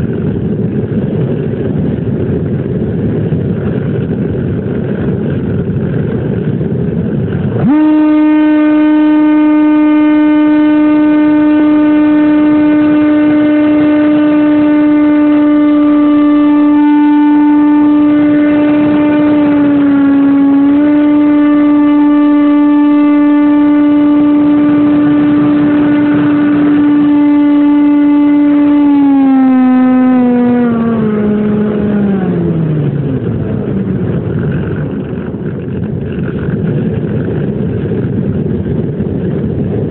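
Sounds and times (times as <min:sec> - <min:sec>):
wind rushing: 0:00.0 - 0:39.9
model plane motor whine: 0:07.4 - 0:38.0.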